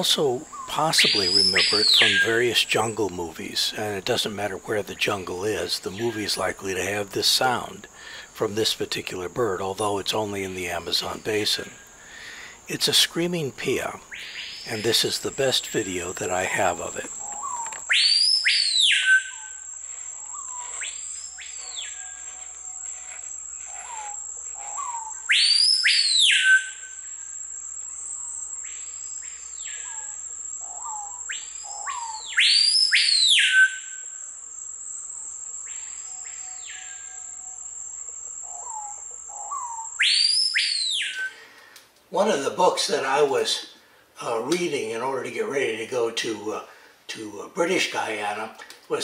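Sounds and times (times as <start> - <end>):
high insect drone: 0.0 - 49.0
recorded bird call playback: 0.0 - 49.0
bird whistled calls: 0.5 - 2.4, 17.2 - 19.6, 23.8 - 27.0, 29.5 - 34.1, 38.5 - 41.4.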